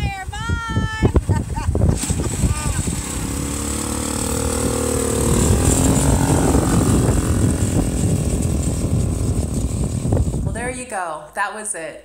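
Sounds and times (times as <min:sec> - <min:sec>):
dune buggy engine running: 0:01.0 - 0:10.8.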